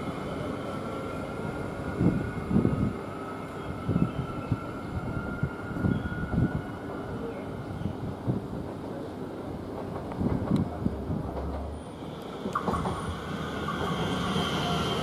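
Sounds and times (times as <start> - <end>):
electric train high whine: 0.0 - 8.2, 11.6 - 15.0
train running rumble: 0.0 - 15.0.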